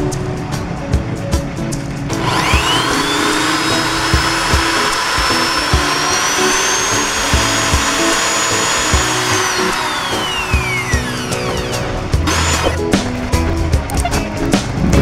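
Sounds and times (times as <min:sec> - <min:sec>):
cordless drill whining: 0:02.1 - 0:12.8.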